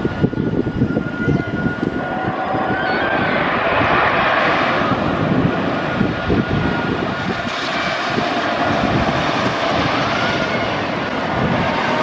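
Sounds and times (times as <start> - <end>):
roller coaster rumbling on track: 0.0 - 12.0.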